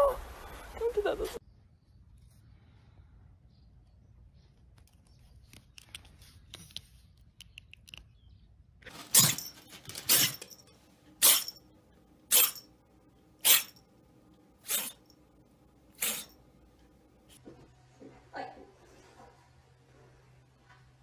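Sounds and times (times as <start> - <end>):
kitten sneezing: 16.0 - 16.3.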